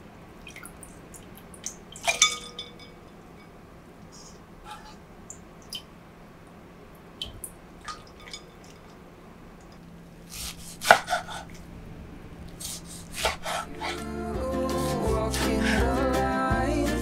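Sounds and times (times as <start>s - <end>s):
knife chopping on wooden board: 10.4s - 11.2s
background music: 13.7s - 17.0s.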